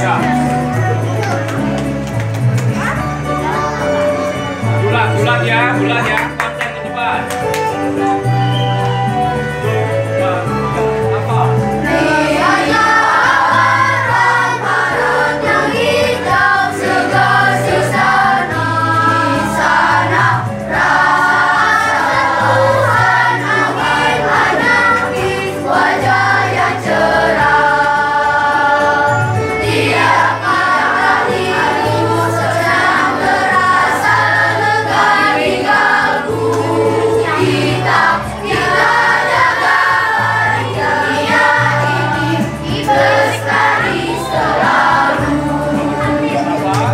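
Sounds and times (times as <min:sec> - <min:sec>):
electronic keyboard accompaniment: 0:00.0 - 0:46.9
children's choir singing: 0:11.8 - 0:46.9.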